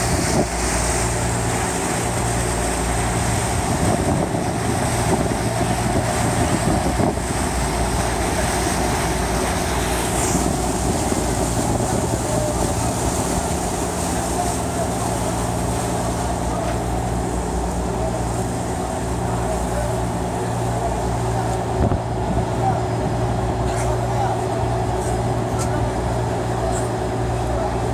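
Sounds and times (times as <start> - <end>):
ferry engine drone: 0.0 - 27.9
water rushing along hull: 0.0 - 27.9
wind on microphone: 3.4 - 7.6.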